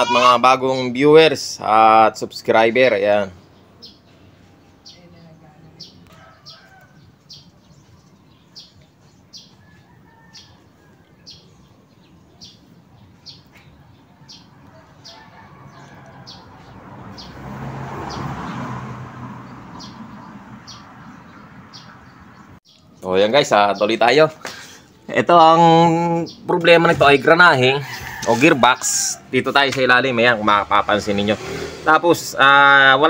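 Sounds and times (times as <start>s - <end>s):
small bird chirping: 3.3s - 17.4s, 19.7s - 23.1s.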